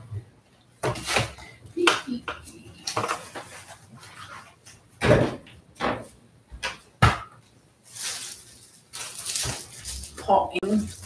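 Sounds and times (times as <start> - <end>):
objects knocking and thumping: 0.8 - 3.7, 5.0 - 7.4.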